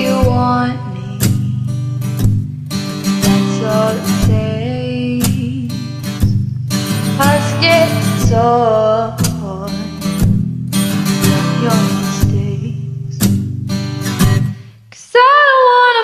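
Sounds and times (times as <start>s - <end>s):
woman singing into a microphone: 0.0s - 2.0s, 3.1s - 6.4s, 7.1s - 10.2s, 11.2s - 13.3s, 14.9s - 16.0s.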